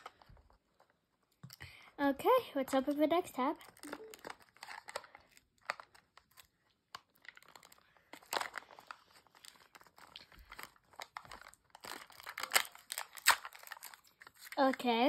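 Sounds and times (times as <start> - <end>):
foil crinkling: 3.6 - 15.0.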